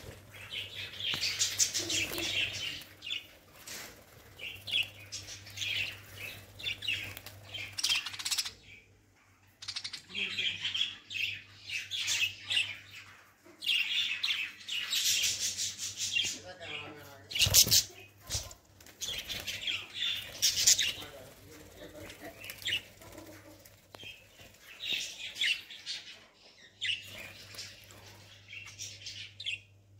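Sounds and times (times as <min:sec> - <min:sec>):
budgerigars chirping: 0:00.0 - 0:03.3, 0:04.4 - 0:08.8.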